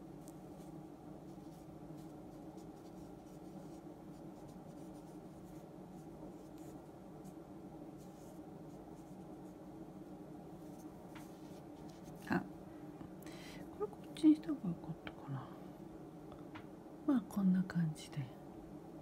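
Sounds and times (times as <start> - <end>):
steady low hum: 0.0 - 19.0
brush pen scratching paper: 0.3 - 7.4.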